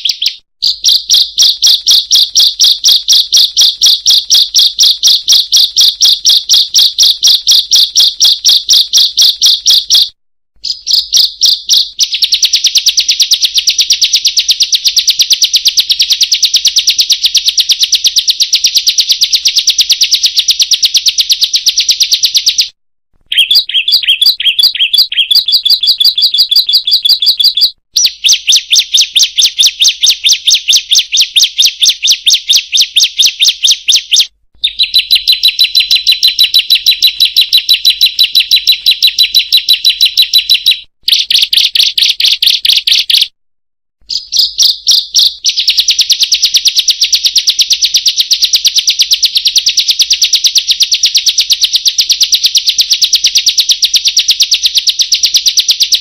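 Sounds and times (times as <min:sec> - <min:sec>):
bird singing fast trills: 0:00.0 - 0:14.7, 0:23.3 - 0:43.3, 0:44.1 - 0:46.5.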